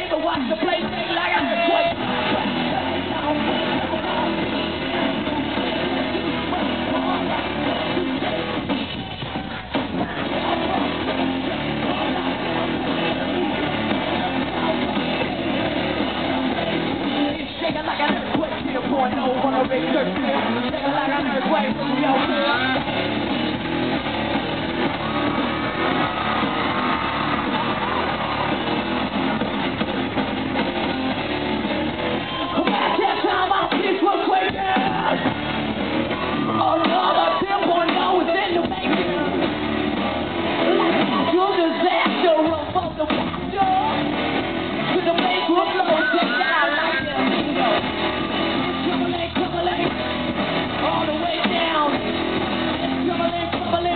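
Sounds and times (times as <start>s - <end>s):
person singing or shouting: 0.0s - 8.2s, 32.2s - 35.4s, 36.1s - 39.3s, 40.7s - 44.1s, 44.9s - 50.0s
live rock band playing: 0.0s - 53.9s
strummed electric guitars: 0.0s - 53.9s.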